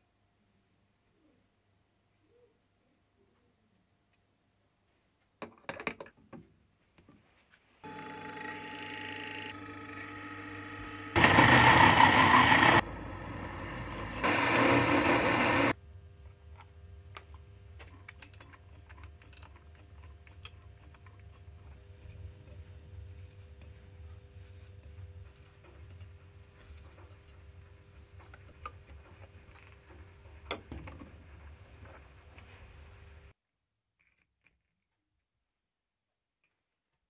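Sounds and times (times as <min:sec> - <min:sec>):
milling machine motor whine: 0:07.9 - 0:15.8.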